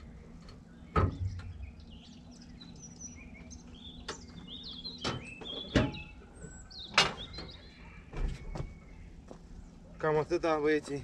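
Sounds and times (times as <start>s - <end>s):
small birds chirping: 0.0s - 11.0s
sharp knocks and clanks: 0.9s - 1.6s, 5.0s - 6.1s, 6.9s - 7.6s.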